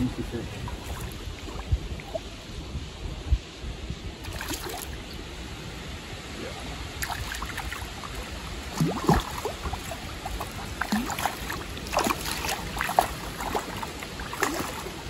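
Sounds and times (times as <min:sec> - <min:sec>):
fish splashing in water: 0:04.2 - 0:05.0, 0:07.0 - 0:15.0.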